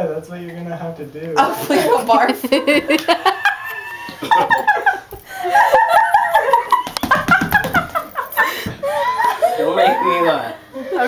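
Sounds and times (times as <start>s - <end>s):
people talking: 0.0s - 3.2s, 9.4s - 11.0s
people laughing and giggling: 1.4s - 11.0s.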